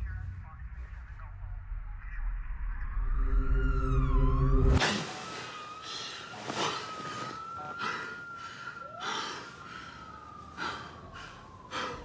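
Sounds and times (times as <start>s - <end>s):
man gasping breaths: 7.8s - 12.0s.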